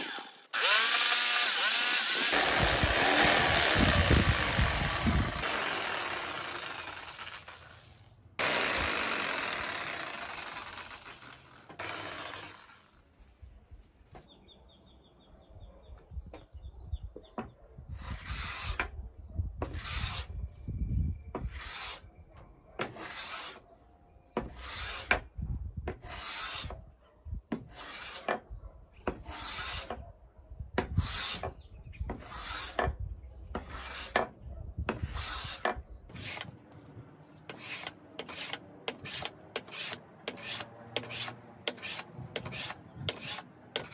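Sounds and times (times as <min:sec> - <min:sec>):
electric palm sander running: 0:00.0 - 0:07.8, 0:08.4 - 0:12.7
bench plane scraping wood: 0:18.0 - 0:18.9, 0:19.6 - 0:20.3, 0:21.4 - 0:22.0, 0:22.8 - 0:23.6, 0:24.4 - 0:25.2, 0:25.9 - 0:26.8, 0:27.6 - 0:28.4, 0:29.1 - 0:30.0, 0:30.8 - 0:33.0, 0:33.6 - 0:34.3, 0:34.9 - 0:36.6, 0:37.5 - 0:43.9.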